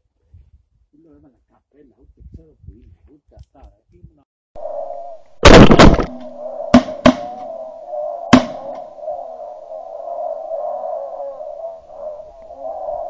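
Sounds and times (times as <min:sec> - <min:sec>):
shotgun shots: 0:05.4 - 0:07.4.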